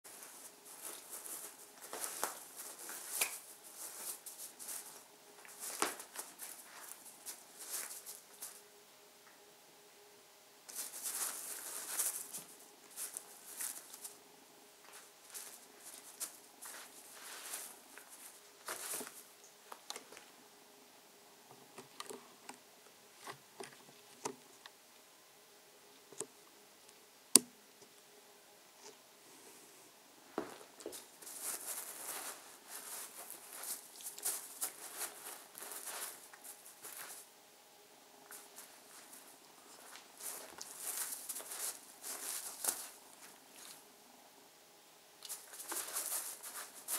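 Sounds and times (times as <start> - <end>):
cat scuffling with fabric pillow: 0.1 - 8.6, 14.9 - 19.3, 30.4 - 37.3.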